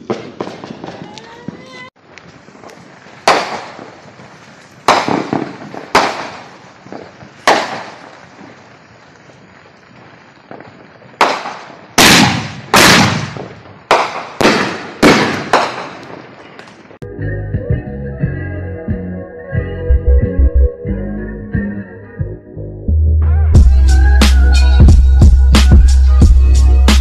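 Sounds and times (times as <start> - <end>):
firework shells bursting: 0.0 - 17.0.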